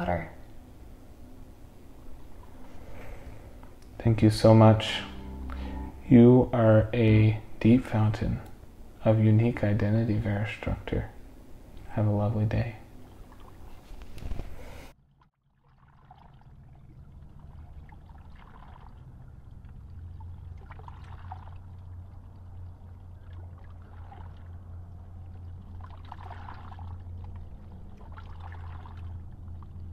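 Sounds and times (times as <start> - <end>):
steady low rumble: 0.0 - 14.6, 16.9 - 29.9
water splashing and trickling: 12.1 - 13.9, 15.0 - 29.9.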